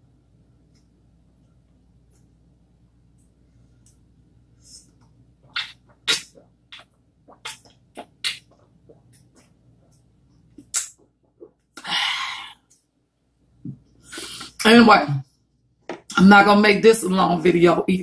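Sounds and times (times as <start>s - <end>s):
person gulping a drink: 5.4s - 9.6s.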